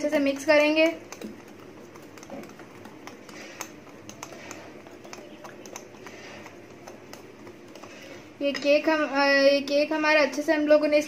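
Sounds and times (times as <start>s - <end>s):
batter swishing: 0.0s - 8.4s
whisk clicking against bowl: 0.0s - 8.8s.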